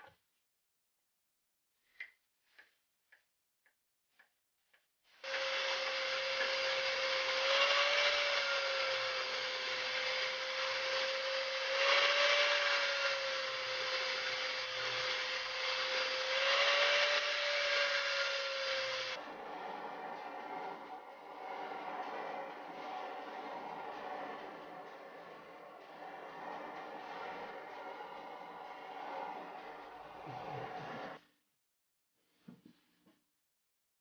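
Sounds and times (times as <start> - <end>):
angle grinder grinding steel: 5.2 - 31.2.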